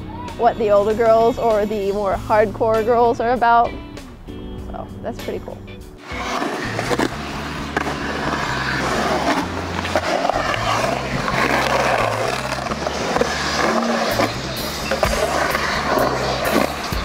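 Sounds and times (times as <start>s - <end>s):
skateboard wheels rolling on concrete: 5.1s - 17.0s
skateboard clacks: 6.1s - 17.0s.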